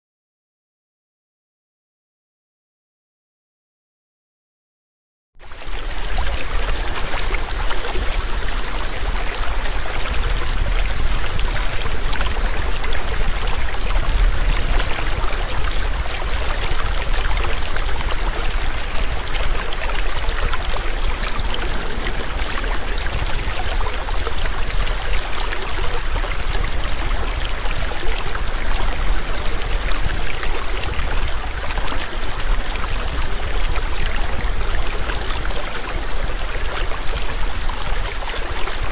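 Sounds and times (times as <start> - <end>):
waterfall rushing water: 5.6 - 38.9.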